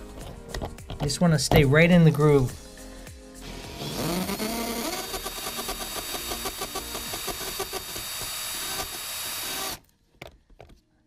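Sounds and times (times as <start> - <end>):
cordless drill drilling metal: 3.4 - 9.8.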